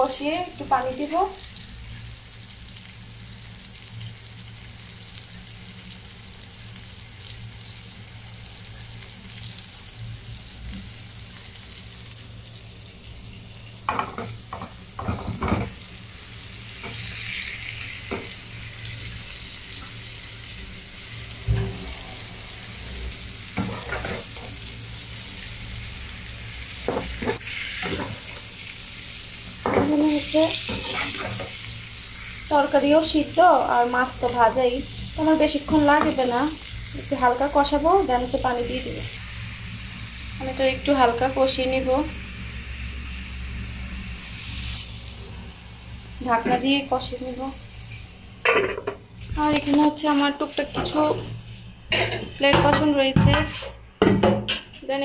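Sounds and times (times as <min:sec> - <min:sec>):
food sizzling in a pan: 0:00.0 - 0:54.0
food clattering into a pan: 0:13.9 - 0:15.8
metal spatula scraping a pan: 0:23.6 - 0:24.5, 0:29.9 - 0:31.6.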